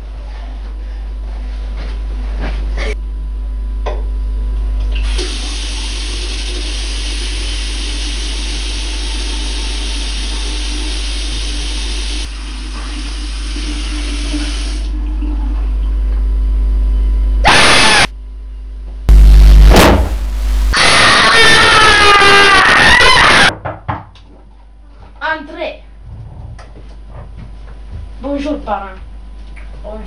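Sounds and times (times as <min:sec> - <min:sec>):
low electrical hum: 0:00.0 - 0:07.9, 0:14.9 - 0:22.6
tap water running into sink: 0:05.0 - 0:15.7.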